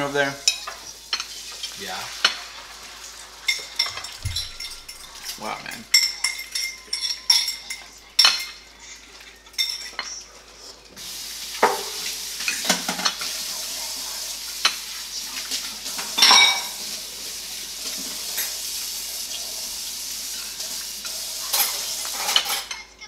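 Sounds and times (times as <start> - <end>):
dishes and cutlery clinking: 0.4 - 11.0, 11.6 - 13.5, 14.5 - 17.0, 20.3 - 23.0
steady hiss: 11.0 - 22.3.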